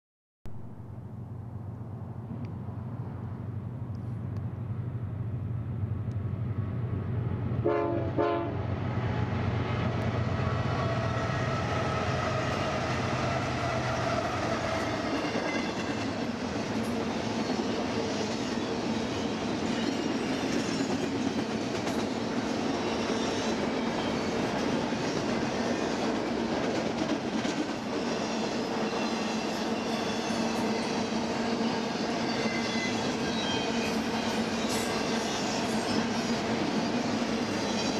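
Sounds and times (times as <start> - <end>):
diesel locomotives droning: 0.5 - 37.9
train horn blast: 7.6 - 8.7
train wheels clattering on rail: 9.9 - 37.9.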